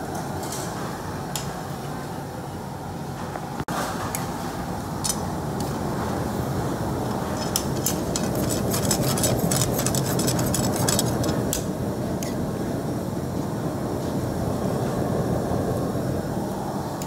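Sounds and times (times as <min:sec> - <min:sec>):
utensils scraping metal wok: 0:07.1 - 0:11.5.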